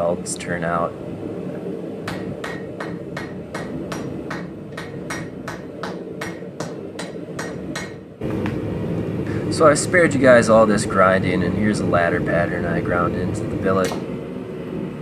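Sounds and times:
hammer striking metal on anvil: 0:02.0 - 0:08.1.

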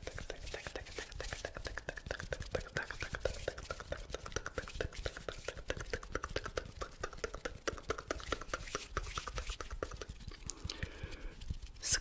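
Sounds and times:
wet mouth clicks and smacks: 0:00.0 - 0:11.8
soft breathy sound: 0:10.4 - 0:12.0.

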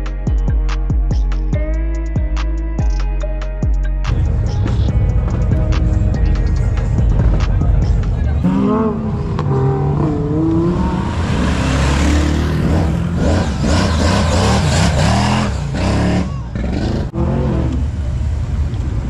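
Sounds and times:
car engines revving: 0:04.1 - 0:19.0.

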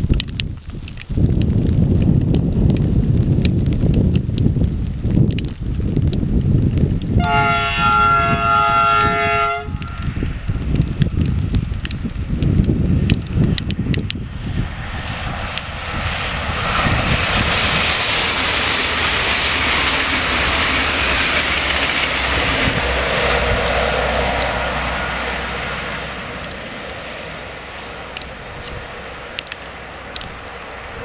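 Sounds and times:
train passing at high speed: 0:07.1 - 0:31.0.

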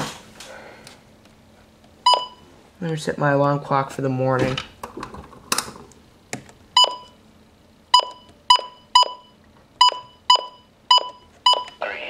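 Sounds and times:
short high key-press beeps: 0:02.0 - 0:02.4, 0:06.8 - 0:07.2, 0:07.9 - 0:11.8.

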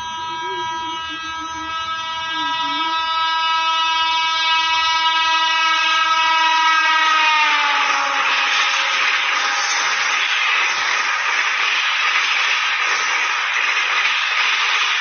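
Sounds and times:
locomotive horn blast: 0:00.0 - 0:10.2.

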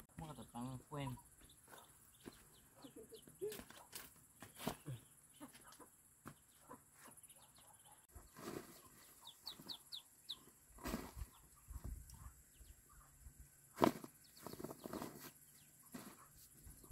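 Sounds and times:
bird calls: 0:00.2 - 0:13.2, 0:13.8 - 0:16.9
hoe thudding into dry soil: 0:08.4 - 0:08.9, 0:10.8 - 0:11.4, 0:13.8 - 0:16.3.

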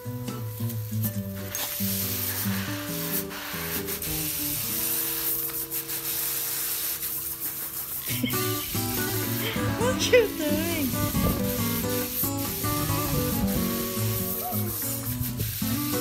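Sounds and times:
background music: 0:00.0 - 0:15.1
hose nozzle spray hissing: 0:00.3 - 0:16.0.

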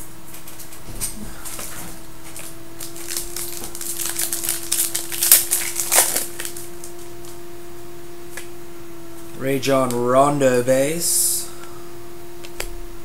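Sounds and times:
steady hum: 0:00.0 - 0:13.0
trading cards clicking and rustling: 0:02.3 - 0:07.4.

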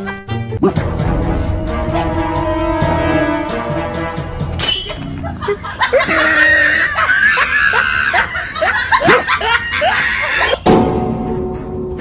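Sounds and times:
person laughing: 0:05.1 - 0:10.6.

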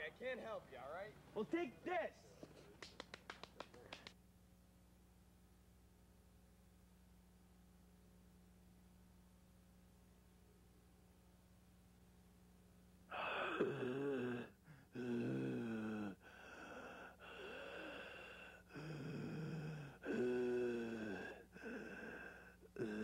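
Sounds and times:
person breathing heavily with groans: 0:13.1 - 0:23.0.

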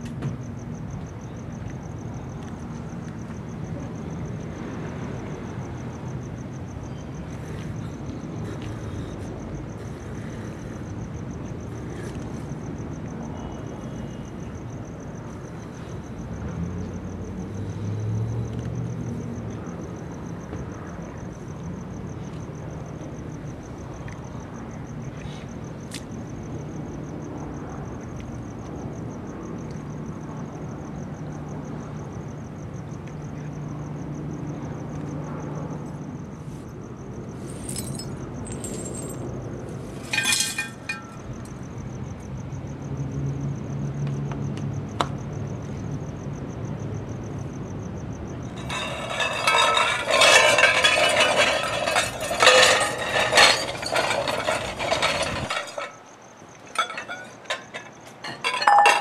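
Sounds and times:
sharp glass clink: 0:37.5 - 0:39.2, 0:58.2 - 0:59.0
glass bowls clinking together: 0:40.0 - 0:41.2, 0:48.6 - 0:55.9, 0:56.8 - 0:59.0.

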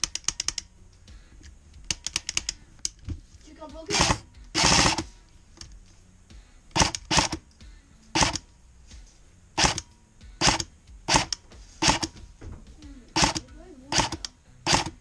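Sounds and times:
airsoft rifle shots: 0:03.9 - 0:05.1, 0:06.7 - 0:07.4, 0:08.2 - 0:08.4, 0:09.6 - 0:12.2, 0:13.2 - 0:15.0.

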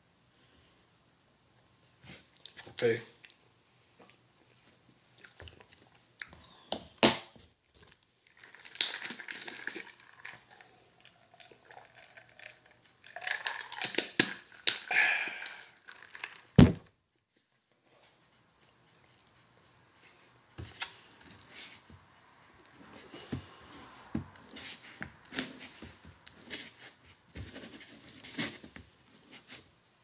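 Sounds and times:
rustly drinking and handling noise: 0:01.9 - 0:06.8, 0:07.4 - 0:30.0.

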